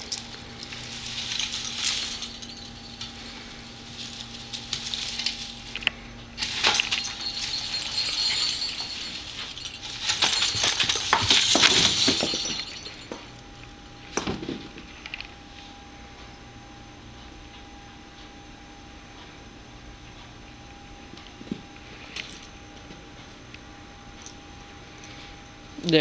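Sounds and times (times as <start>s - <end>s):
branches and tinsel rustling: 0.0s - 13.2s
ornaments clinking: 0.0s - 13.3s.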